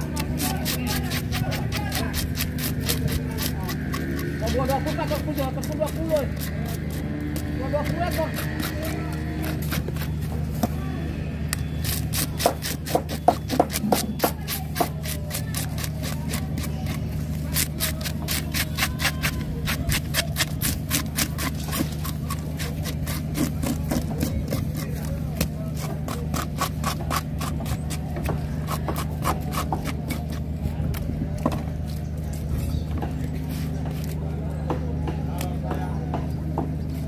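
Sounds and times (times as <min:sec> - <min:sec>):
blade scraping fish scales: 0:00.0 - 0:10.5, 0:11.8 - 0:30.4.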